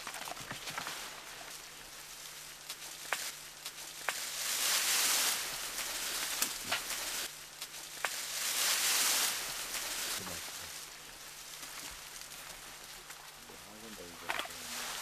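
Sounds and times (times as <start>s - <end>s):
twigs snapping: 0.0s - 10.2s, 14.2s - 14.7s
leaves and branches rustling: 0.0s - 15.0s.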